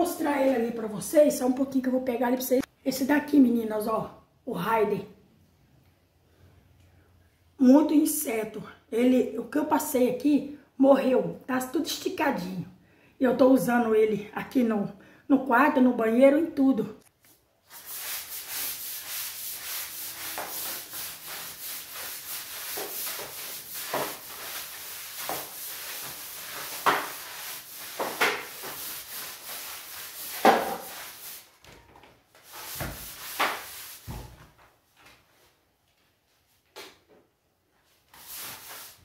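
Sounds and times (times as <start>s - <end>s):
scrub brush scrubbing wet tiles: 17.6s - 31.5s, 32.4s - 34.1s, 38.1s - 39.0s.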